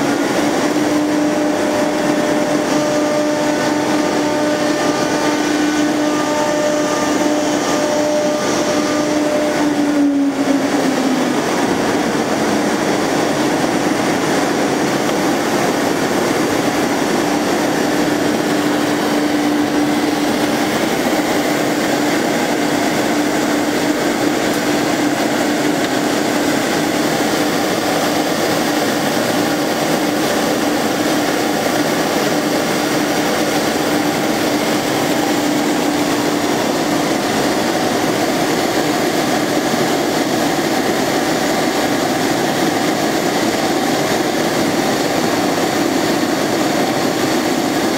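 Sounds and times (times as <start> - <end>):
router machine droning: 0.0 - 38.7.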